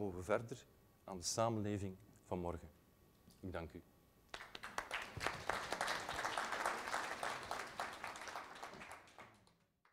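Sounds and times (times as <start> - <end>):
audience applauding: 4.3 - 9.7.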